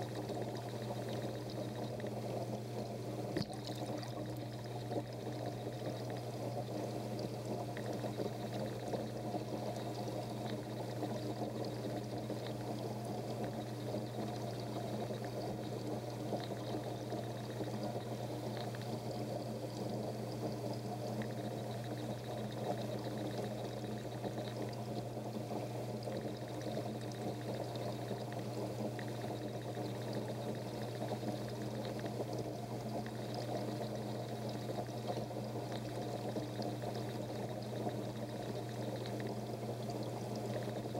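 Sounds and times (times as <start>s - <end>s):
filter pump hum: 0.0s - 40.9s
water pouring and trickling: 3.3s - 5.9s.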